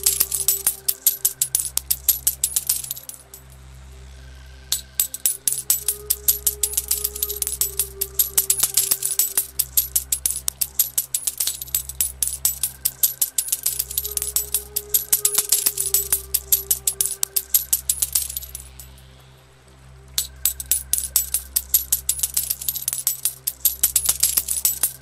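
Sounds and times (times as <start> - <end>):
coins clinking and jingling: 0.0 - 3.6, 4.7 - 19.0, 20.2 - 25.0
soft synth drone: 3.2 - 8.4, 18.4 - 20.7.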